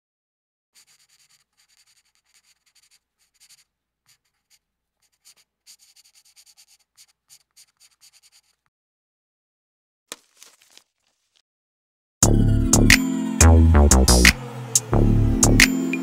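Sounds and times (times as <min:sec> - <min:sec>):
marker scratching on paper: 0:00.8 - 0:08.7.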